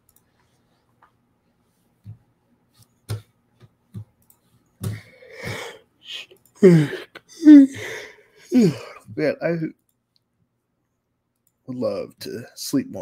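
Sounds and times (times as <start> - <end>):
man yawning: 5.2 - 9.0.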